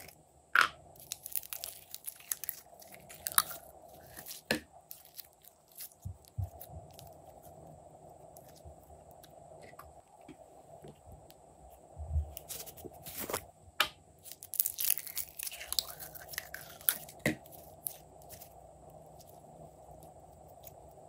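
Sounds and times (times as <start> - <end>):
slime crackling and popping: 1.0 - 7.2, 14.2 - 18.5.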